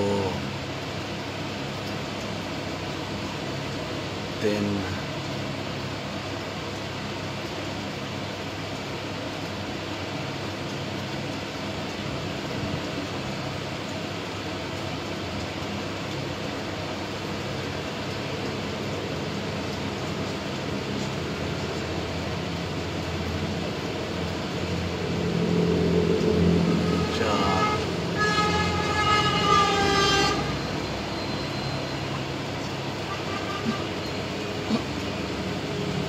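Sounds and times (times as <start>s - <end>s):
vehicle rumbling past: 22.0s - 33.1s
horn held tone: 26.7s - 31.9s, 33.0s - 34.2s.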